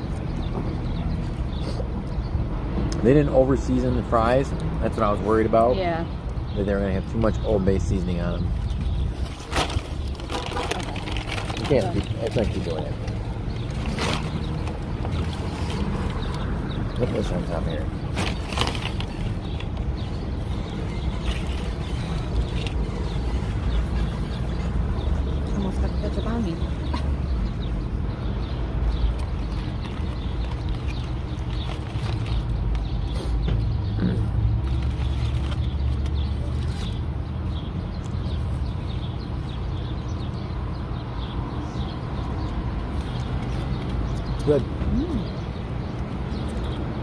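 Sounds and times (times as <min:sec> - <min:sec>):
small birds chirping: 0:00.0 - 0:47.0
paper and foil crinkling: 0:09.1 - 0:16.2, 0:17.3 - 0:19.6, 0:20.5 - 0:23.3, 0:29.1 - 0:32.8, 0:34.7 - 0:37.1.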